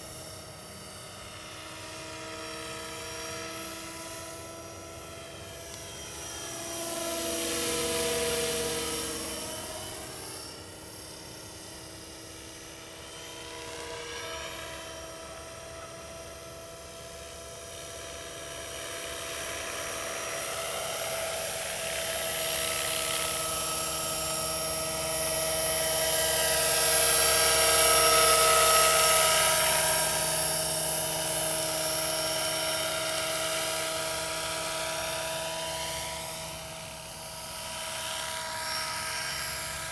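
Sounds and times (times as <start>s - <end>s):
model helicopter high whine: 0.0s - 39.9s.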